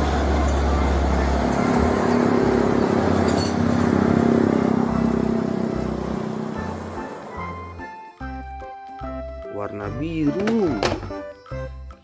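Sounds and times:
tyre and traffic noise: 0.0 - 8.0
tanker truck driving past: 0.0 - 9.5.

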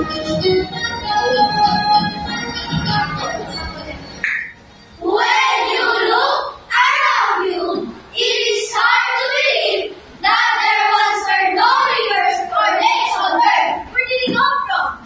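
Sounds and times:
children singing in unison: 5.0 - 13.9.

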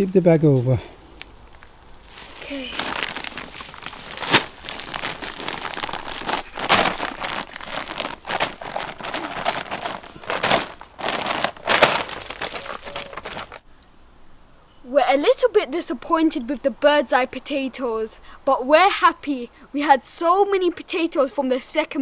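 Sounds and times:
plastic bag crinkling: 1.0 - 13.6.

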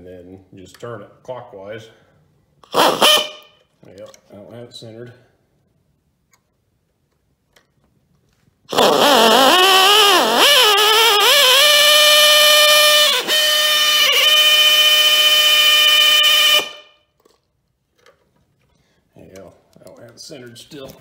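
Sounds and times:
drill whining: 2.6 - 3.5, 8.7 - 16.9.

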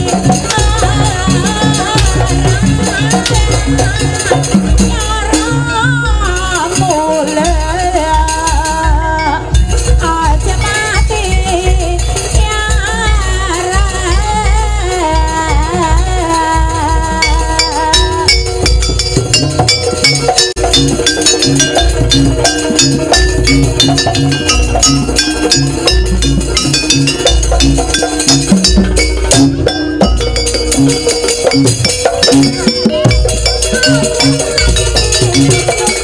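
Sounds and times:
barrel drums beating: 0.0 - 36.0
metallic clinking percussion: 0.0 - 36.0
xylophone: 17.2 - 36.0.

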